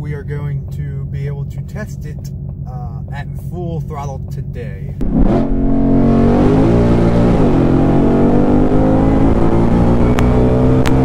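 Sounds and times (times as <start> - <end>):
car engine accelerating hard: 5.0 - 11.0.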